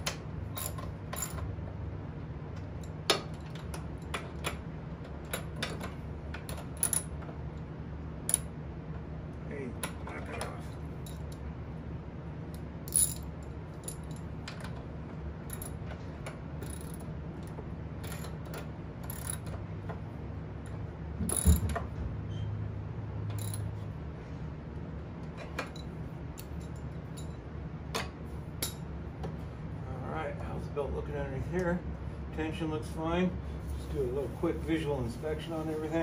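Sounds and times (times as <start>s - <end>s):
steady low hum: 0.0s - 36.0s
metal clinks: 0.5s - 1.5s, 12.9s - 14.3s, 18.0s - 19.6s, 21.3s - 21.8s, 23.3s - 23.8s, 25.7s - 27.4s
ratchet wrench clicking: 19.0s - 19.5s.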